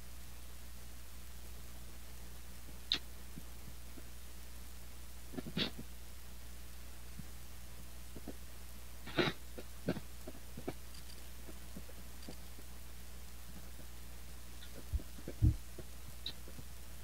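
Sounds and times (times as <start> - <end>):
low electrical hum: 0.0 - 17.0
faint clicks and knocks: 9.6 - 12.7.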